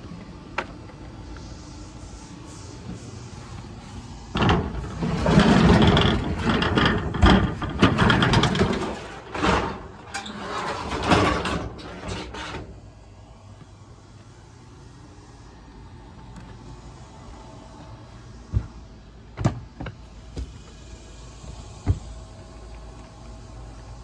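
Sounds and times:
metal shed door sliding and rattling: 4.3s - 12.9s
clattering knocks and bangs: 4.4s - 12.6s.

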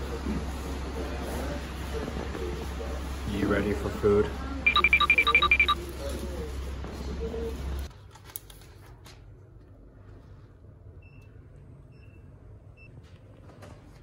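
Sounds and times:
keypad lock short high beeps: 4.7s - 5.8s.

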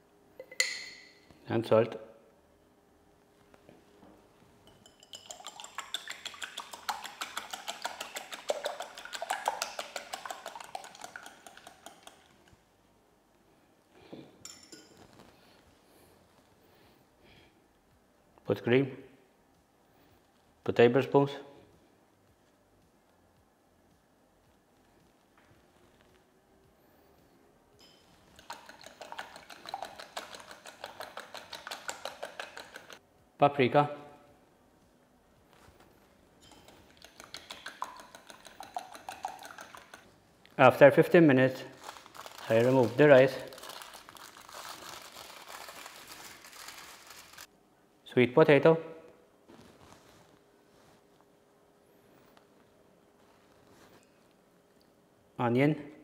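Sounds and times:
whisk clinking on glass lid: 4.6s - 12.2s
whisk clicking against glass bowl: 4.6s - 12.5s, 27.8s - 33.0s, 36.4s - 40.1s.

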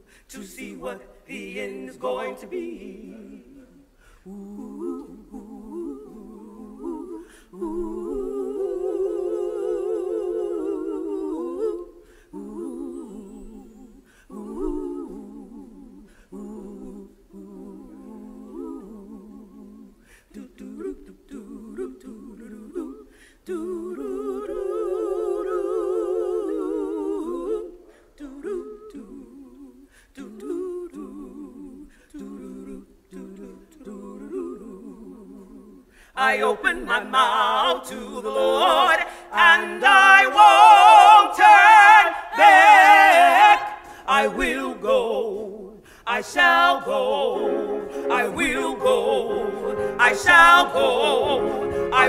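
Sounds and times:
singers humming with vibrato: 36.2s - 52.0s.

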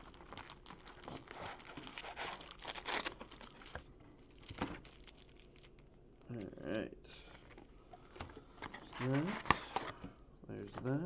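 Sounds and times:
foil packs crinkling: 0.0s - 5.8s, 8.0s - 10.0s.

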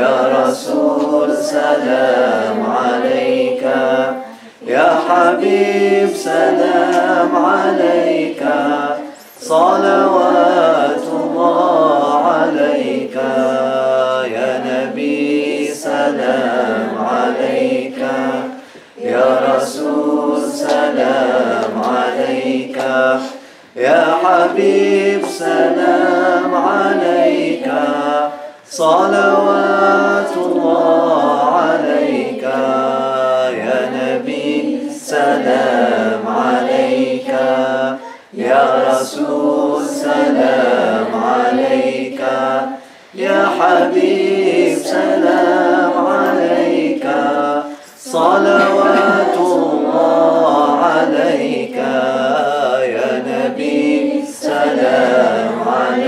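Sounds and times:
group chanting: 0.0s - 56.0s.

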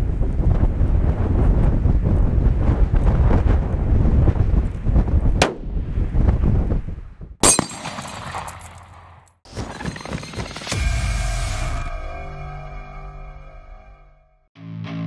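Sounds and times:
wind buffeting microphone: 0.0s - 7.4s
gunshot crack: 5.4s - 5.8s
bullet striking steel plate: 7.4s - 9.1s.

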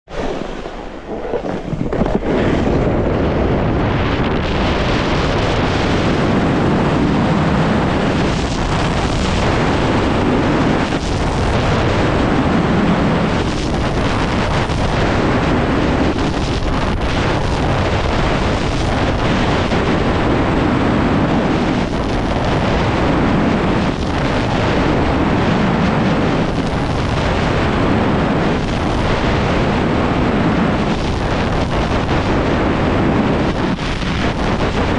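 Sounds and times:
wind rushing over microphone: 0.0s - 34.9s
snowboard scraping on hard snow: 0.1s - 3.6s.

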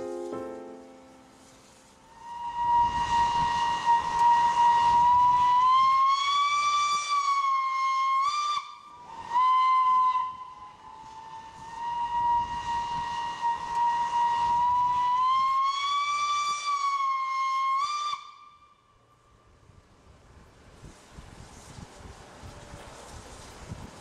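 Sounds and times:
steam hissing: 0.0s - 18.3s, 19.8s - 24.0s
steam locomotive whistle: 1.8s - 19.1s.

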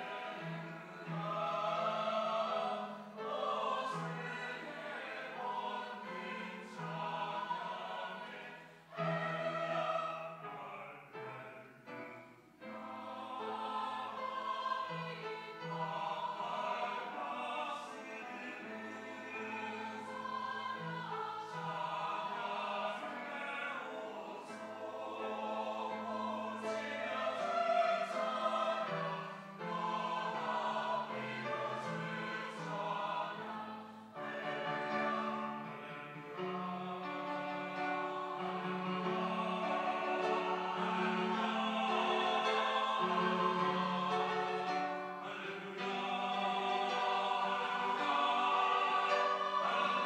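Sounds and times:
mixed choir singing: 0.0s - 50.0s.

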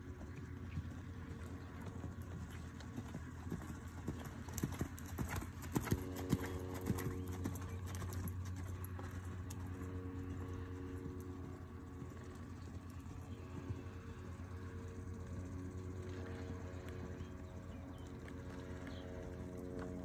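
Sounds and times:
horse hooves loping in sand: 0.0s - 20.0s.

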